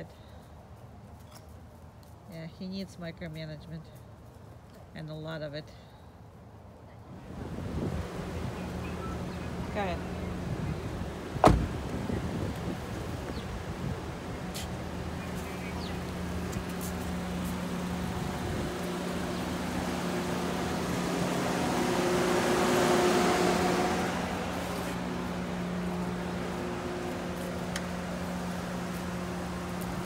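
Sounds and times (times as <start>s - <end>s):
vehicle engine humming: 6.2s - 30.0s.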